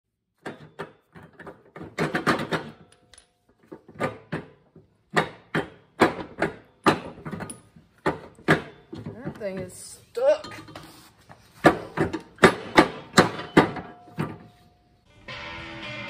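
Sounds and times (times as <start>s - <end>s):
metal clunks and rattles: 0.4s - 9.8s, 11.5s - 14.7s.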